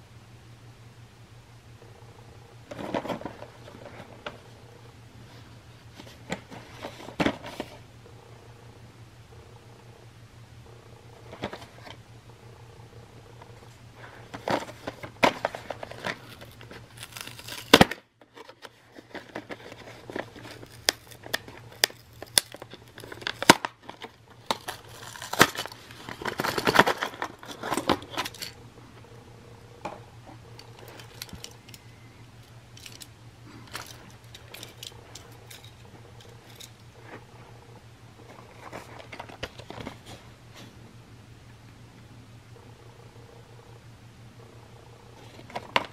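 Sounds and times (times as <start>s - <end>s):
low hum: 0.0s - 45.9s
plastic packaging crinkling: 14.3s - 28.6s, 30.5s - 31.8s, 32.4s - 37.2s.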